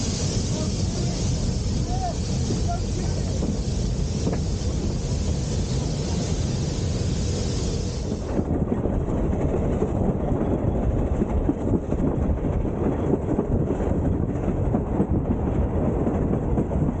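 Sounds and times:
steam rushing hiss: 0.0 - 8.5
train wheels clattering on rails: 0.0 - 17.0.

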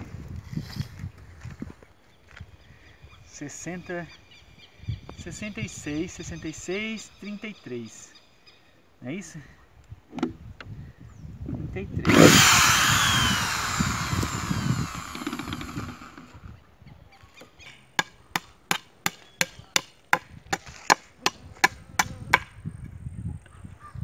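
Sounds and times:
electric drill boring wood: 12.0 - 16.4
sharp clicks: 12.1 - 16.3.

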